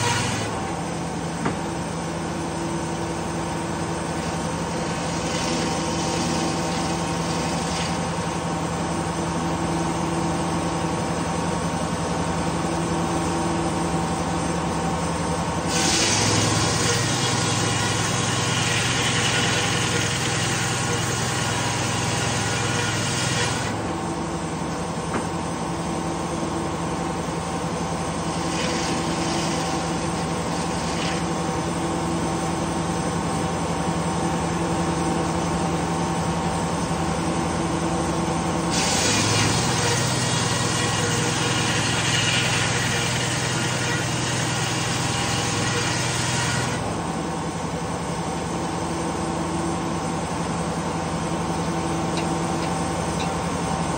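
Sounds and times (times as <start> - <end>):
circular saw cutting wood: 0.0 - 2.3, 3.0 - 9.3, 15.6 - 24.2, 28.0 - 32.7, 38.4 - 47.1.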